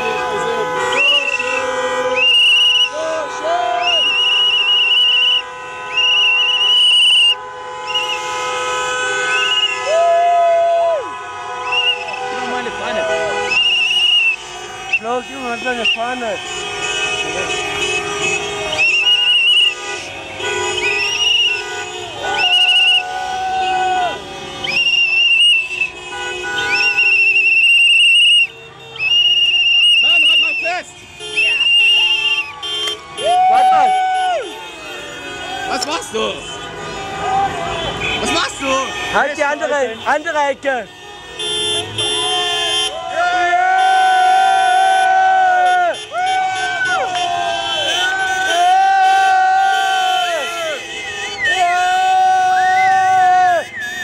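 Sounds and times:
car horns honking: 0:00.0 - 0:54.0
whistle blasts: 0:00.8 - 0:03.0, 0:03.8 - 0:08.6, 0:09.2 - 0:09.9, 0:11.6 - 0:12.4, 0:13.4 - 0:16.2, 0:17.2 - 0:23.1, 0:24.5 - 0:34.9, 0:49.8 - 0:51.7, 0:52.4 - 0:54.0.

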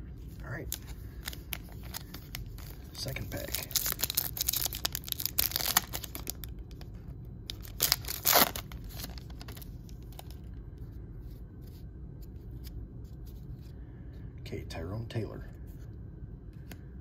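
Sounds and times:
cards rustling out of wrapper: 0:00.4 - 0:10.5
plastic wrapper crinkling: 0:00.5 - 0:10.5.

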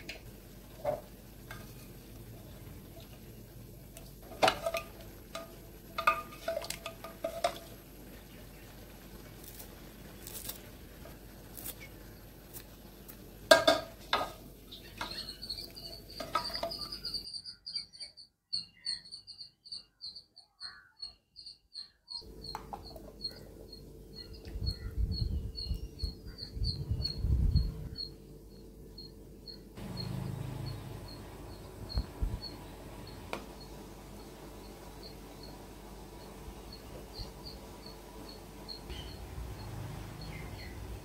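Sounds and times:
small bird chirping: 0:14.6 - 0:41.0.

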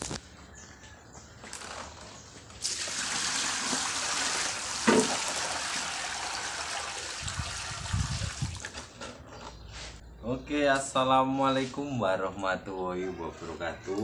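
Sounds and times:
water pouring onto concrete: 0:02.6 - 0:08.8
short knock or splash: 0:04.8 - 0:05.2.

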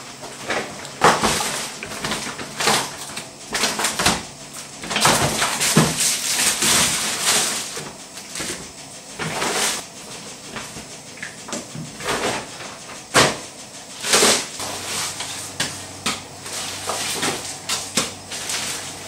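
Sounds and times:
plastic bags rustling and crinkling: 0:00.3 - 0:09.8.

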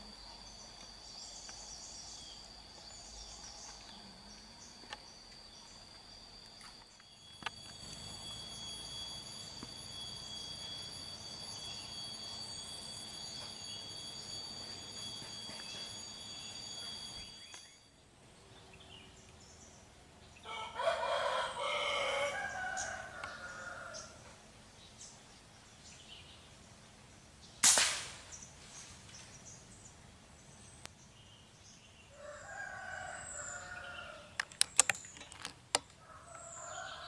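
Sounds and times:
high-pitched insect drone: 0:00.0 - 0:18.2, 0:20.4 - 0:24.3, 0:32.2 - 0:35.0, 0:36.2 - 0:37.0.

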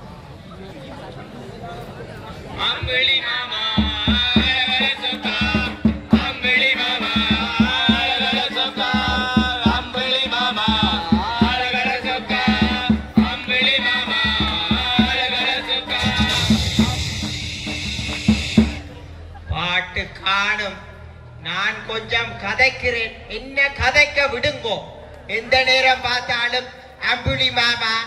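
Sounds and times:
person singing: 0:03.1 - 0:18.8
hand drums: 0:03.8 - 0:19.1.

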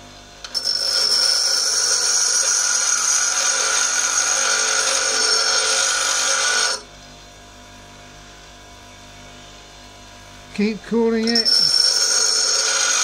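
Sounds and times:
grinder motor humming: 0:00.4 - 0:06.9, 0:10.6 - 0:13.0
tool grinding on grinder wheel: 0:00.4 - 0:06.9, 0:11.2 - 0:13.0.

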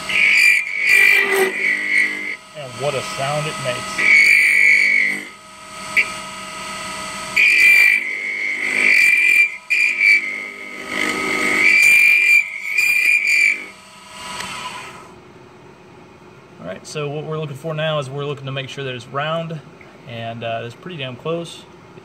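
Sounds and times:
lathe tool chattering whine: 0:00.0 - 0:15.1.

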